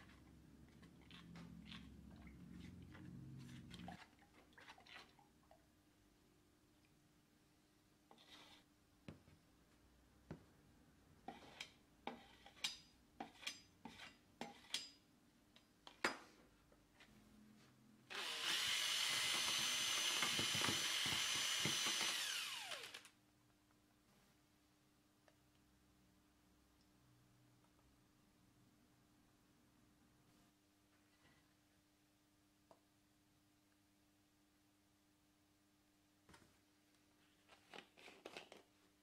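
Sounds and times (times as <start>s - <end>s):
power drill mixing paint: 18.1s - 23.2s.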